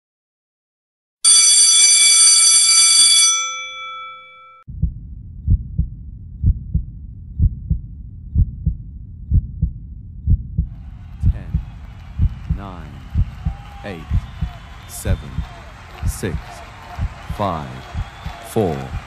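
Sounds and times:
bell ringing loudly: 1.2s - 4.6s
heartbeat thumps: 4.7s - 19.0s.

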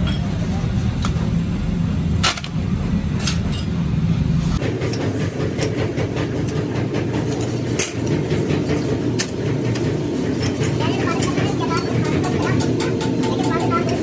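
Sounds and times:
roller machine humming: 4.0s - 14.0s.

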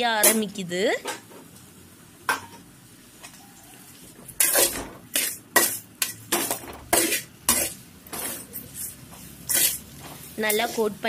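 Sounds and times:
vegetables frying: 0.0s - 11.0s
spatula scraping metal pan: 4.4s - 11.0s.

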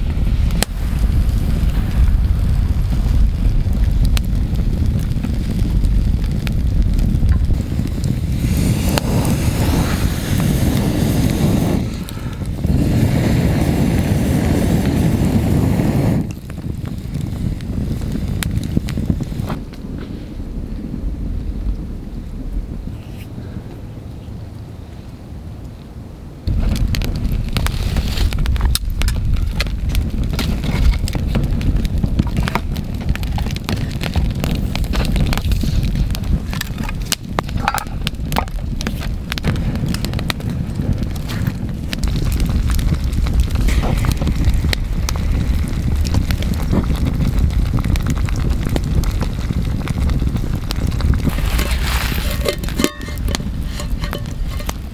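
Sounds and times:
campfire crackling: 0.0s - 54.9s
logs shifted with fire tongs: 36.5s - 40.0s, 51.2s - 54.9s.

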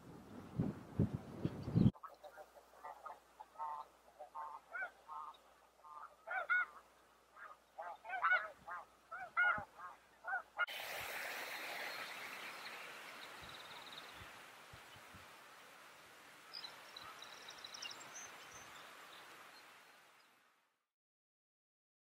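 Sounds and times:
snow geese honking: 2.0s - 6.8s, 7.4s - 14.0s
steady hiss: 10.7s - 20.3s.

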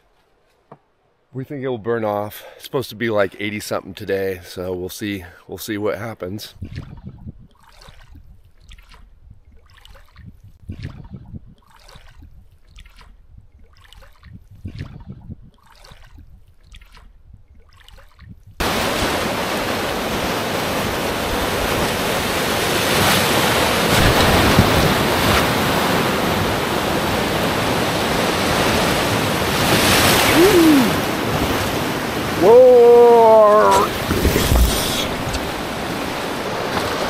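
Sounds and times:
oars splashing in water: 6.6s - 32.6s, 33.4s - 37.0s
rush of churning rapids: 18.6s - 37.0s.

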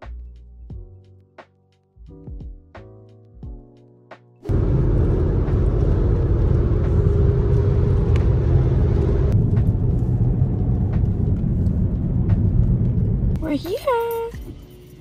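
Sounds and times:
car cabin road rumble: 4.5s - 14.5s.

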